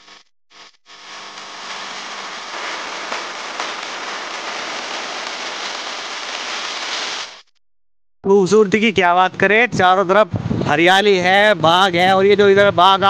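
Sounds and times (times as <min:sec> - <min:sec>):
wind rushing over microphone: 0:09.0 - 0:13.0.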